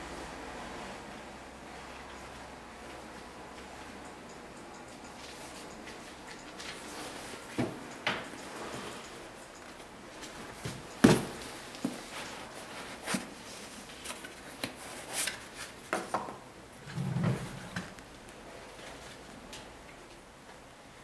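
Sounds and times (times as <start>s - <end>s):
sneaker handling knocks and rustles: 10.6s - 12.0s.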